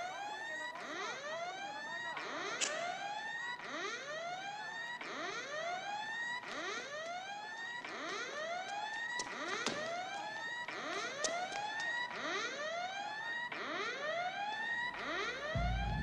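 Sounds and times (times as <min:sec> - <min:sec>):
siren whooping: 0:08.0 - 0:16.0.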